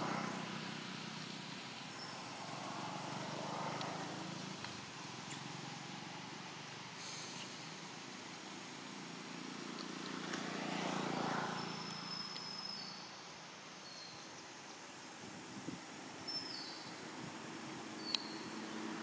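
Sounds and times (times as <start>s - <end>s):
vehicle passing: 0.0s - 7.0s, 9.0s - 12.4s, 17.3s - 19.0s.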